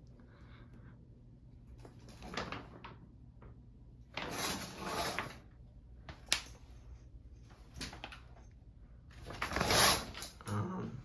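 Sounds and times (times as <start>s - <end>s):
shower curtain rings scraping rod: 4.2s - 5.5s, 9.2s - 10.5s.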